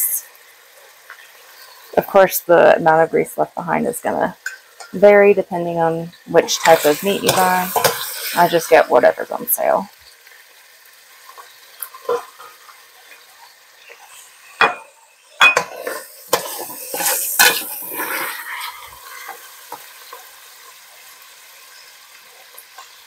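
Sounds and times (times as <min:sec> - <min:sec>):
meat sizzling: 0:00.0 - 0:23.0
spoon knocking and scraping pot: 0:06.5 - 0:08.2, 0:14.6 - 0:17.6.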